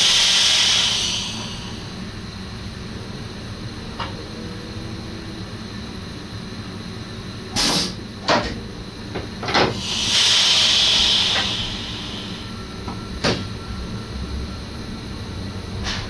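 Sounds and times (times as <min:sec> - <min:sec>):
compressed air hissing: 0:00.0 - 0:02.1, 0:07.5 - 0:08.0, 0:09.6 - 0:12.7.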